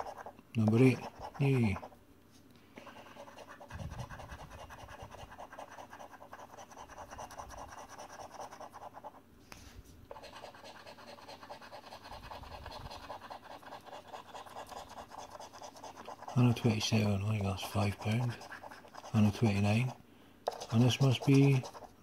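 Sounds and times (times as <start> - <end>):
coin scratching a scratchcard: 0.0 - 1.9, 3.2 - 9.2, 10.1 - 22.0.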